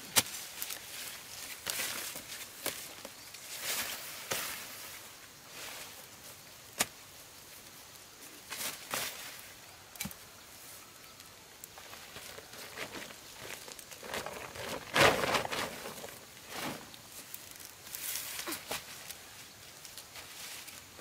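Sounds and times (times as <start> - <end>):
dry corn stalks rustling: 0.0 - 21.0
sharp cracks of stalks: 6.7 - 7.0.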